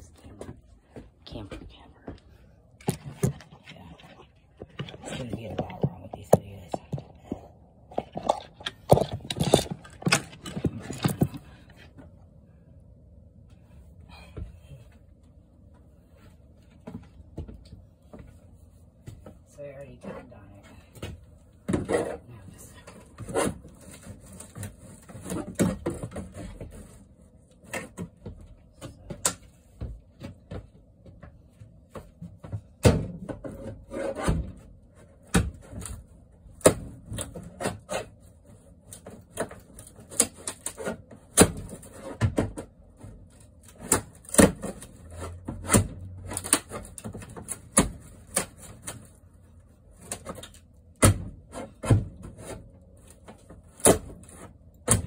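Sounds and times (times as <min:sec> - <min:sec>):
wood and metal scraping: 0:02.8 - 0:12.2, 0:33.2 - 0:36.1, 0:37.0 - 0:50.6
wooden cabinet being pried loose: 0:08.0 - 0:11.5, 0:36.6 - 0:38.1, 0:38.9 - 0:49.1.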